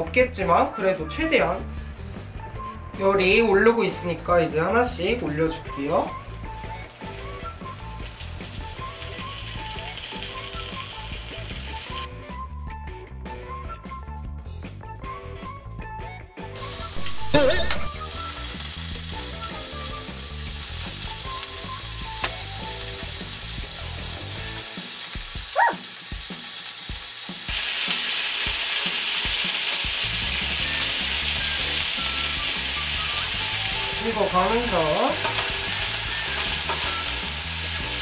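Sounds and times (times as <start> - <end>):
meat sizzling on a griddle: 5.7 - 12.1, 16.6 - 38.0.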